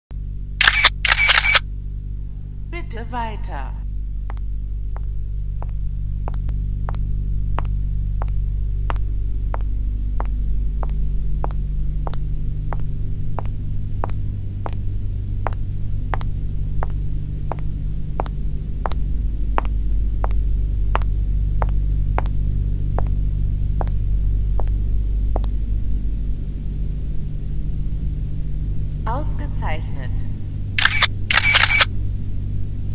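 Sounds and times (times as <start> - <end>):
low droning hum: 0.1 - 32.9
high heels walking: 24.6 - 25.6.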